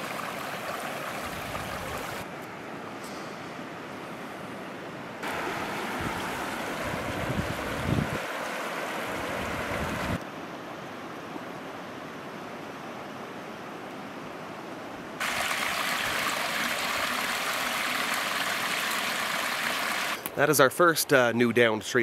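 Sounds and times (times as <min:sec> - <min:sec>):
creek water rushing over riffles: 0:00.0 - 0:02.2, 0:05.2 - 0:10.2, 0:15.2 - 0:20.3
water splashing down rocky cascade: 0:00.0 - 0:02.2, 0:05.2 - 0:10.2, 0:15.2 - 0:20.2.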